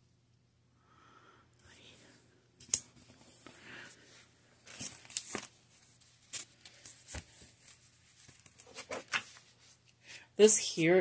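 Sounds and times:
sticker sheet rustling: 4.6 - 9.8.

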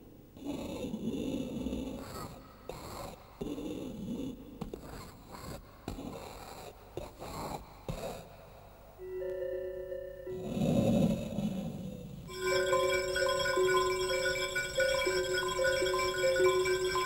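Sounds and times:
sustained electronic bell tones: 9.0 - 11.0, 12.3 - 17.0.

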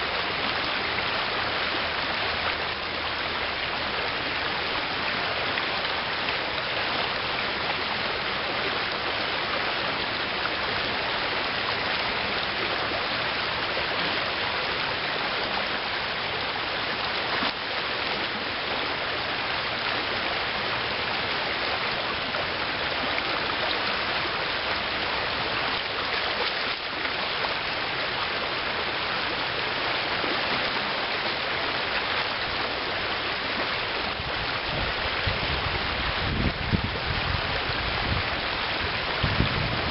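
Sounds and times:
river running over gravel: 0.0 - 39.9.

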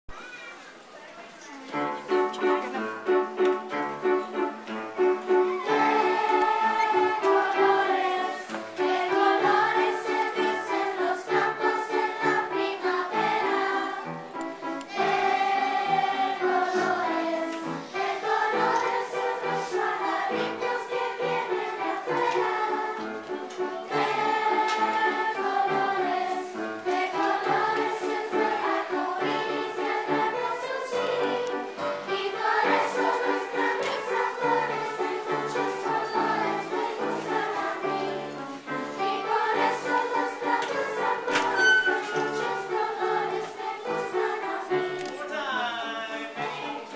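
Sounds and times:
children's choir singing: 1.7 - 46.9.

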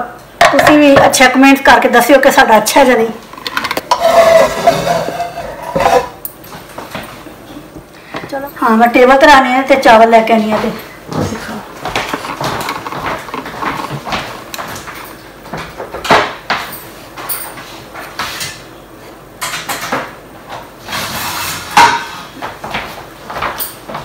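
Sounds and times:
plates and cutlery clinking: 3.4 - 6.2, 21.3 - 22.4.

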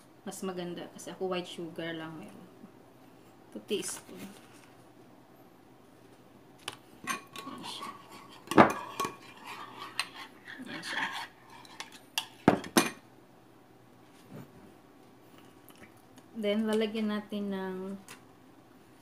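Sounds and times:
spoon stirring in glass bowl: 7.0 - 12.8.

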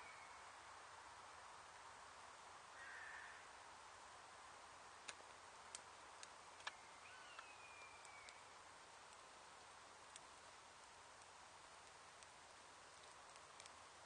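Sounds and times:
twigs crackling as they catch fire: 4.7 - 14.0.

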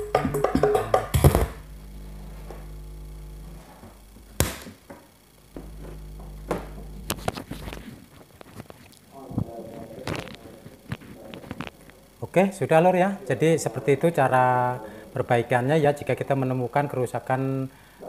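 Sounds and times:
music through speaker: 0.0 - 2.4
amplifier hum: 0.0 - 18.0.

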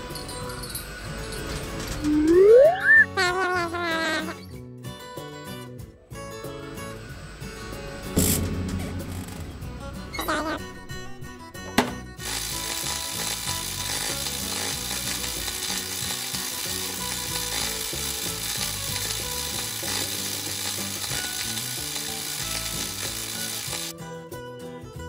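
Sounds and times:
cartoon welding sizzle: 1.3 - 4.4, 6.8 - 11.1, 12.2 - 23.9.

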